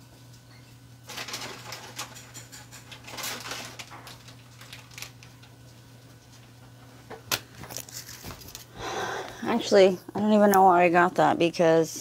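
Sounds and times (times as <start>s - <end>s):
steady low hum: 0.0s - 12.0s
packet rustling and clicking: 1.1s - 8.7s.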